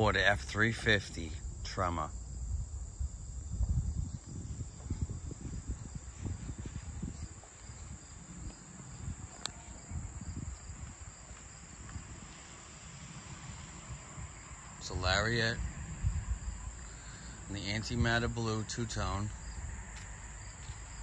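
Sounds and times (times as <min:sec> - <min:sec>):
insect chorus trilling: 0:00.0 - 0:21.0
low rumbling on microphone: 0:01.3 - 0:12.3, 0:13.1 - 0:18.4.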